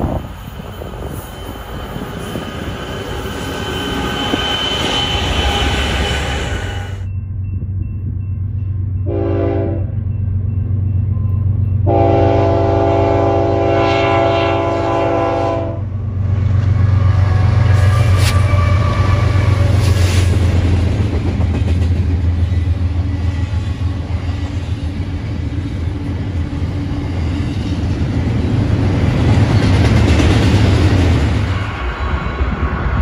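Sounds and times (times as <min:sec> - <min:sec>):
diesel locomotive engines rumbling: 0:00.0 - 0:33.0
multi-chime train air horn: 0:09.0 - 0:09.9, 0:11.8 - 0:15.8.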